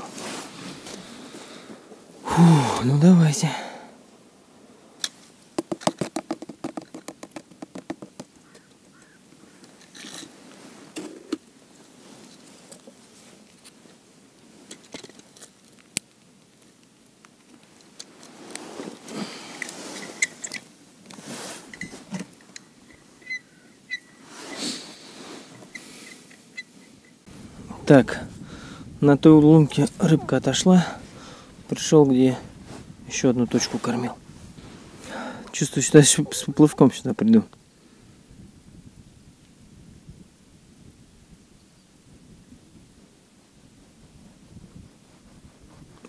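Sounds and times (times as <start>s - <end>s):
scrapes and rustles: 0.0s - 2.1s, 9.5s - 15.9s, 17.4s - 23.3s, 24.2s - 28.4s, 29.2s - 37.0s.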